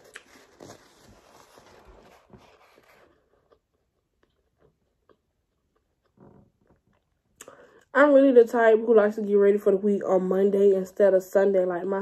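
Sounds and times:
soft clicks and crunches: 0.0 - 7.4
chewing food: 3.0 - 7.5.

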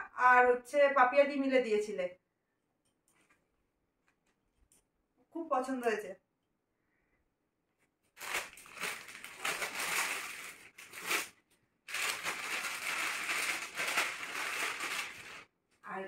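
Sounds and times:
plastic bag crinkling: 8.2 - 15.5.

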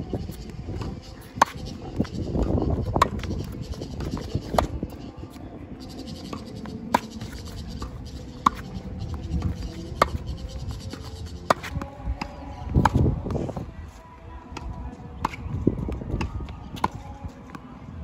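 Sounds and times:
tennis ball bouncing: 0.2 - 13.6, 14.6 - 17.6
tennis ball hit by racket: 0.7 - 5.0, 6.2 - 13.1.

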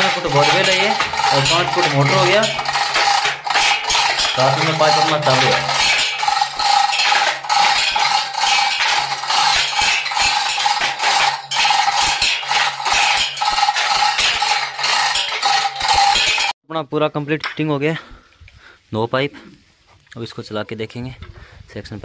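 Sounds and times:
steel chain clattering: 0.0 - 16.6.

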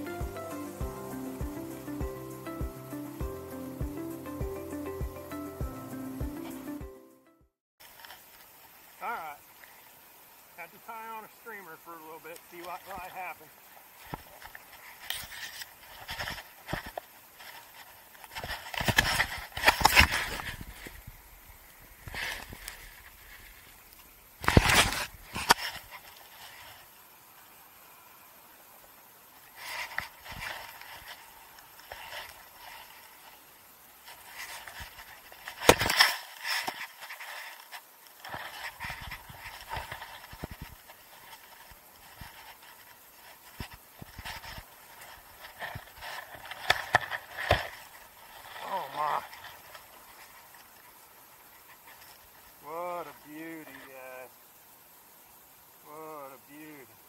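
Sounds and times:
clothing and gear handling noise: 12.5 - 27.5, 29.3 - 52.6.

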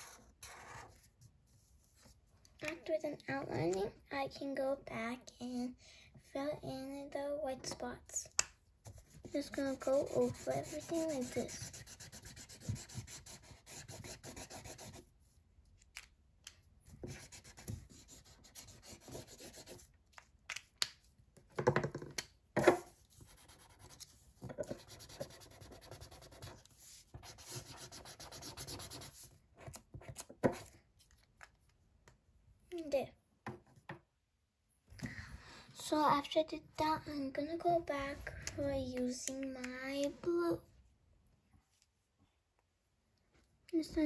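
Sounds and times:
marker scratching on paper: 0.0 - 1.1, 8.9 - 15.0, 17.0 - 19.9, 22.6 - 30.7.

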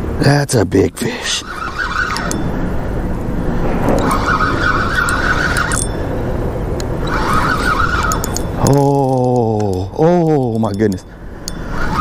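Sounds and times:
steady rushing noise: 1.0 - 8.6
fishing reel drag buzzing: 1.3 - 2.8, 3.4 - 6.2, 7.0 - 8.8, 11.4 - 12.0.

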